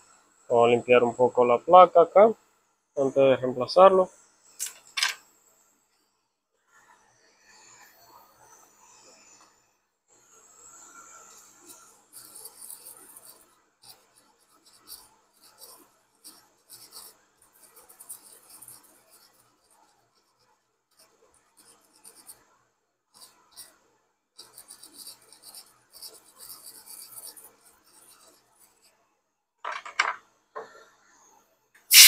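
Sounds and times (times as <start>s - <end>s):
brush scrubbing circuit board: 6.6s - 29.0s.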